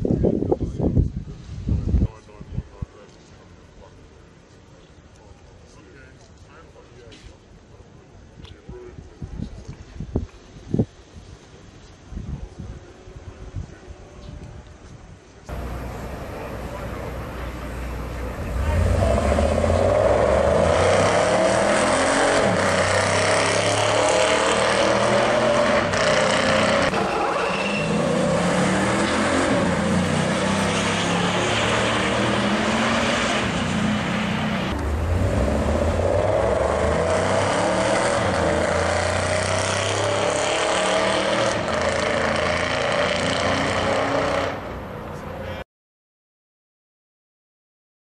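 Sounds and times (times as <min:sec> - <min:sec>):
car engine running loudly: 0:15.5 - 0:25.0.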